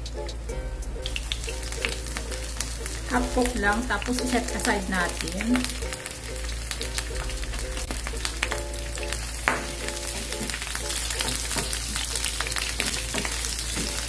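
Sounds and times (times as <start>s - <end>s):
onions sizzling in hot oil: 0.0s - 14.0s.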